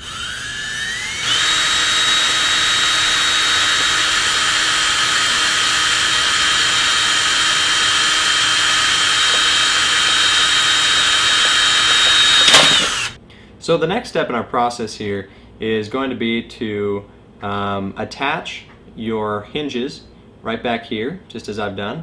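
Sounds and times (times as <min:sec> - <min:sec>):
electric drill whining: 0:00.0 - 0:13.2.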